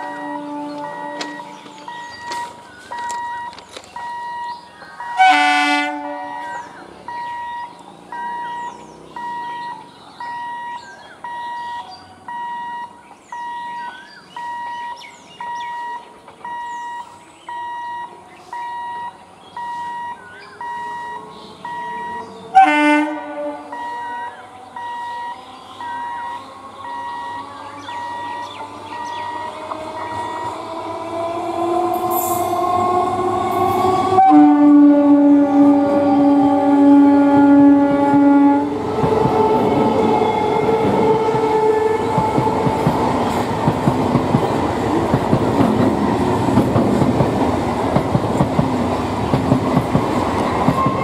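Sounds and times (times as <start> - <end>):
train horn blast: 0.0 - 2.2, 5.2 - 6.7, 22.5 - 24.0, 33.6 - 42.9
electronic two-tone beeper: 0.0 - 5.4, 6.3 - 22.2, 23.7 - 27.4
train whine: 0.0 - 10.7, 19.6 - 51.0
birds chirping: 0.0 - 34.2, 35.0 - 51.0
train passing close: 0.0 - 51.0.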